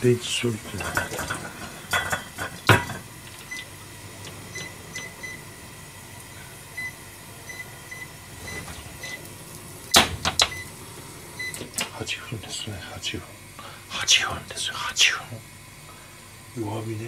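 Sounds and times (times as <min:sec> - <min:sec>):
cooktop button beeps: 0:03.4 - 0:03.7, 0:04.5 - 0:05.4, 0:06.8 - 0:09.3, 0:09.9 - 0:10.8, 0:11.4 - 0:11.8.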